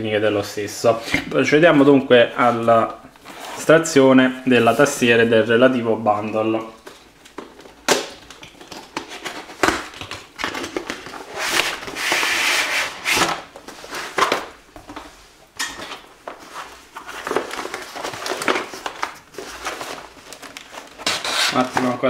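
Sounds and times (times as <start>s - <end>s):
packaging rustling and crinkling: 6.7s - 22.0s.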